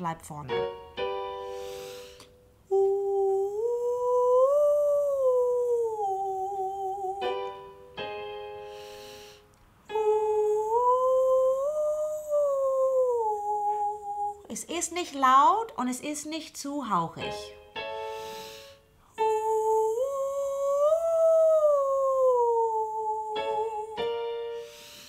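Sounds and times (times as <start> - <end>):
keyboard chord: 0.5 - 2.1, 7.2 - 9.3, 17.2 - 19.6
woman singing vocal exercise: 2.6 - 7.7, 9.9 - 17.6, 19.1 - 24.4.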